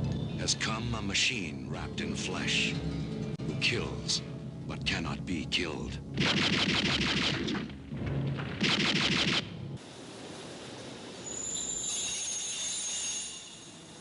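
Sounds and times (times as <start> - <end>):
machine-gun fire bursts: 6.2 - 7.6, 8.6 - 9.5.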